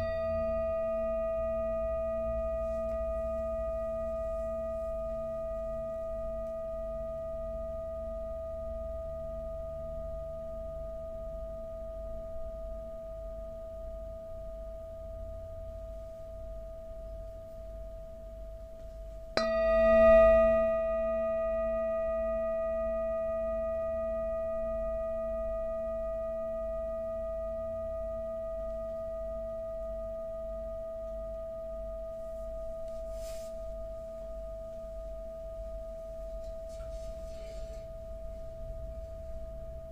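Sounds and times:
singing bowl ringing: 0.0 - 39.9
wooden mallet striking bowl: 18.8 - 25.3.

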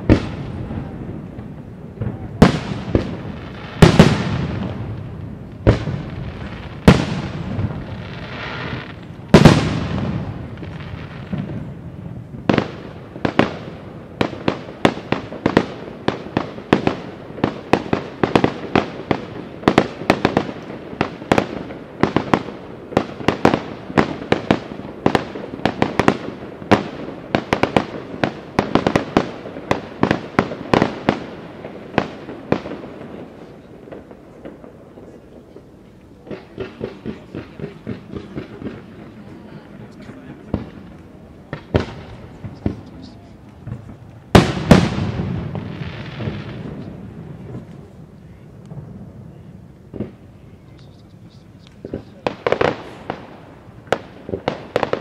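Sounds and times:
rapid small firework bangs: 0.0 - 55.0.

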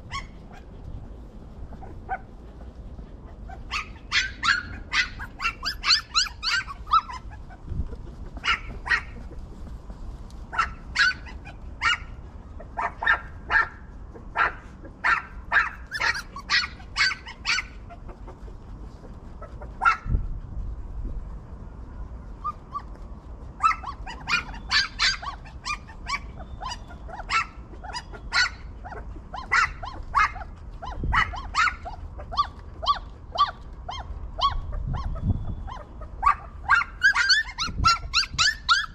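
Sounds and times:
dogs barking: 3.2 - 7.6, 8.4 - 9.4, 10.5 - 18.3, 19.4 - 20.1, 23.6 - 38.9.

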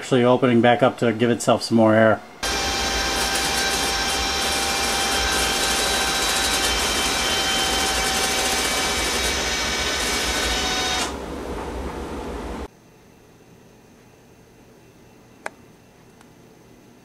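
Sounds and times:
furnace rushing: 0.0 - 12.7.

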